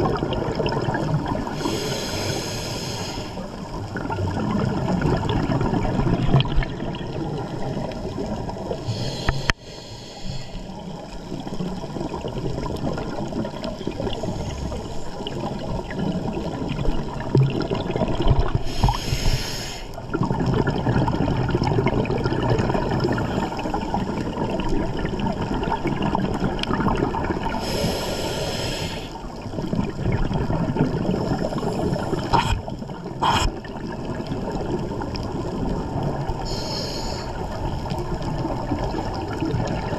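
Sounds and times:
low water rumble: 0.0s - 9.8s, 10.4s - 39.9s
diver breathing through regulator: 1.5s - 3.5s, 8.8s - 10.7s, 18.6s - 20.0s, 27.6s - 29.2s, 31.2s - 33.6s, 36.4s - 37.4s.

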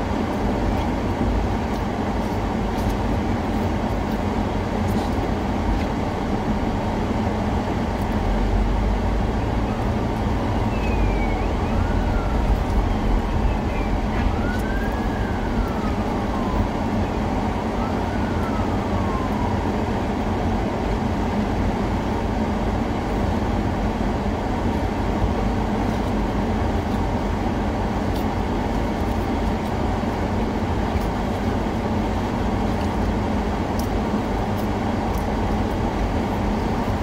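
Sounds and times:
vehicle rumbling: 0.0s - 37.0s
siren wailing: 9.6s - 20.0s.

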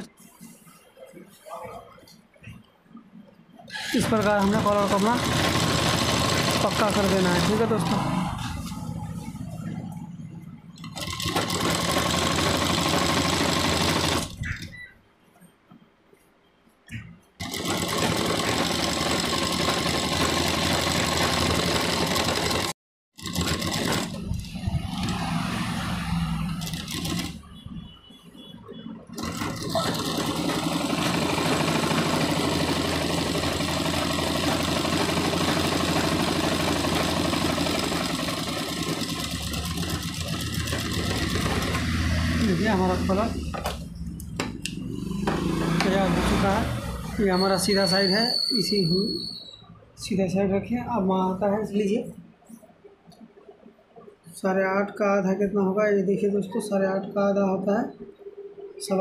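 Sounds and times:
sewing machine running: 3.7s - 8.7s, 10.8s - 14.4s, 17.4s - 27.5s, 29.1s - 43.4s.

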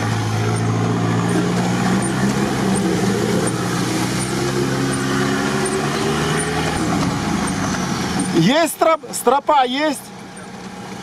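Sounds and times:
off-road vehicle engine: 0.0s - 11.0s
water washing: 0.1s - 8.5s.

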